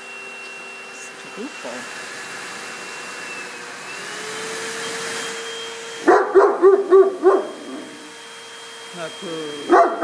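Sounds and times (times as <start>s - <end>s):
dog dryer blower whining: 0.0s - 10.0s
large dog barking: 6.0s - 8.0s, 9.7s - 10.0s.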